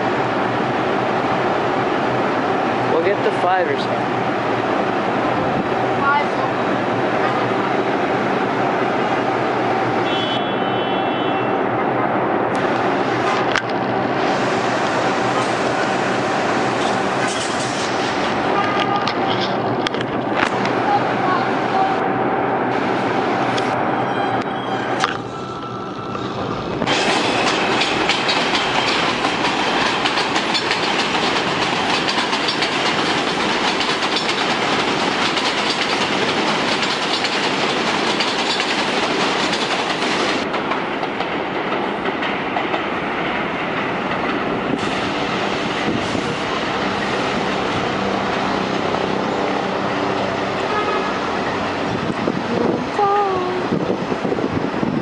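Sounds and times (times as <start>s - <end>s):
subway train rolling on steel track: 0.0s - 55.0s
wheels clacking over rail joints: 26.8s - 44.8s.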